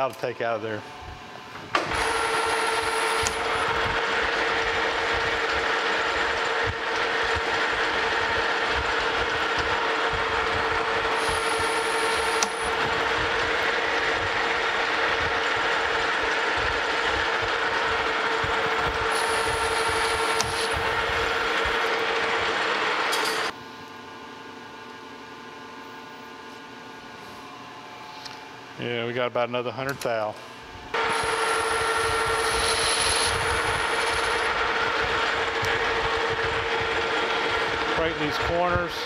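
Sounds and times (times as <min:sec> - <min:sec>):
metal lathe cutting: 0:01.8 - 0:23.5, 0:31.0 - 0:38.8
thin high whine: 0:11.0 - 0:15.9, 0:18.4 - 0:22.0, 0:31.0 - 0:36.4.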